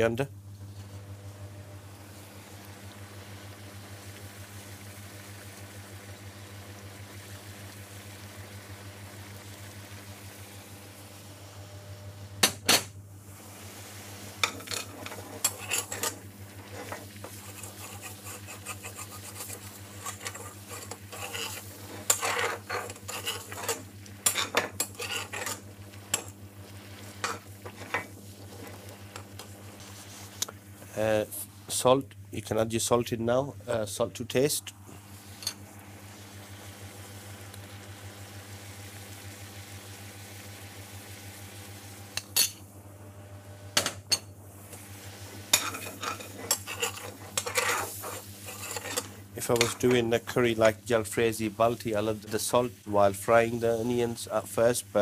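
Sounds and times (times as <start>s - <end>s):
steady low hum: 0.0s - 55.0s
metal spoon scraping a frying pan: 14.4s - 26.3s, 27.2s - 28.8s, 45.5s - 50.0s.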